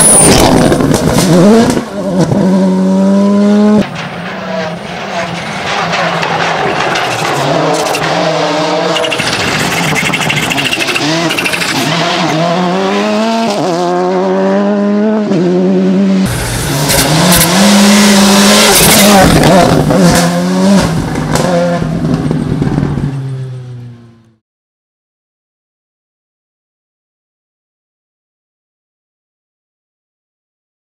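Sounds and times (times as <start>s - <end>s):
rally car engine accelerating: 0.0s - 24.4s.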